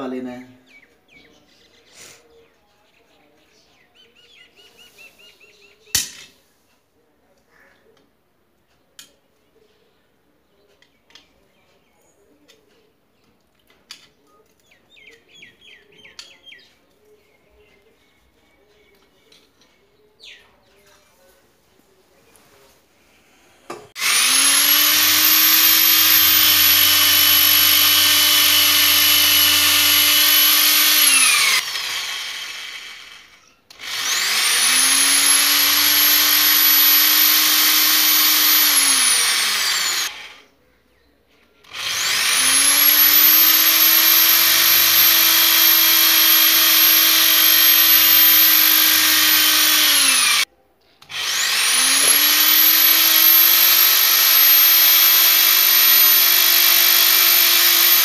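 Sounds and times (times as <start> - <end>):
electric drill boring into wall: 24.0 - 40.4, 41.7 - 50.5, 51.1 - 58.0.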